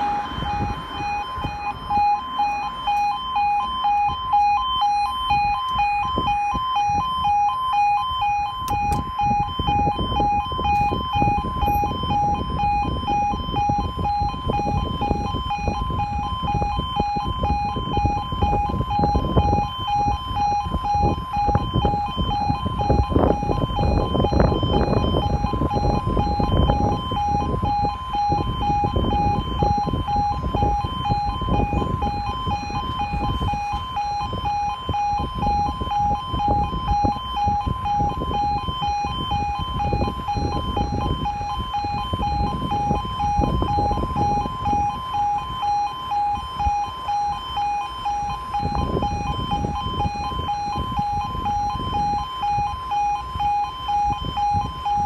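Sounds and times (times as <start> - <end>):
level crossing alarm tones: 0.0 - 55.0
wind buffeting microphone: 0.0 - 55.0.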